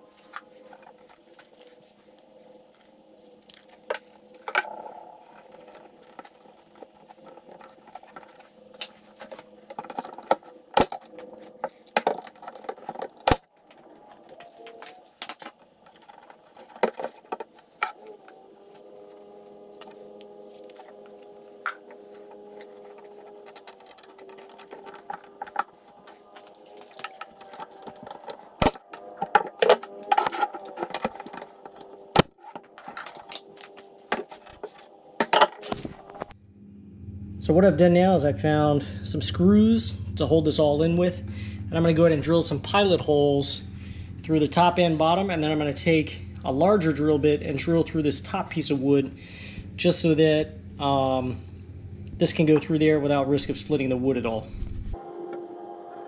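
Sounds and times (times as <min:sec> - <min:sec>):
wooden boards and clamps shifted: 0:03.6 - 0:19.2, 0:20.6 - 0:36.3
sharp cracks: 0:19.7 - 0:36.3.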